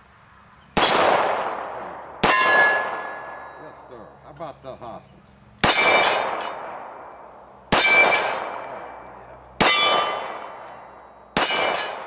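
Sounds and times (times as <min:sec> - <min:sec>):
pistol shots: 0:00.8 - 0:03.6, 0:05.6 - 0:12.0
steel target ringing: 0:00.8 - 0:04.0, 0:05.6 - 0:12.0.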